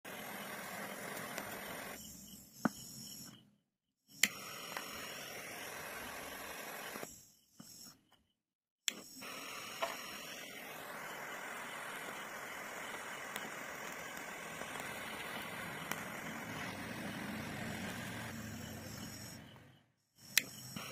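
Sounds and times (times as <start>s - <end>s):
gas torch flame hissing: 0.0s - 3.2s, 4.1s - 7.8s, 8.9s - 20.9s
sharp clicks: 4.1s - 4.9s.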